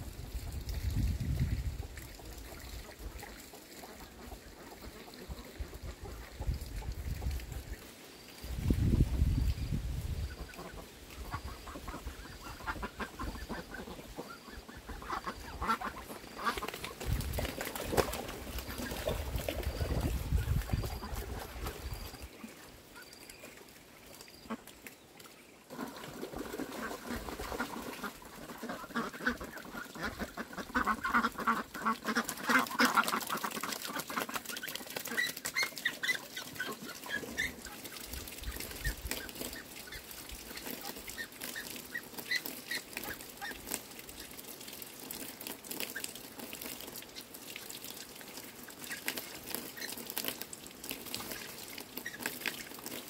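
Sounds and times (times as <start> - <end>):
steady watery hiss: 0.0 - 53.0
ducks quacking: 10.3 - 17.3, 25.7 - 43.6.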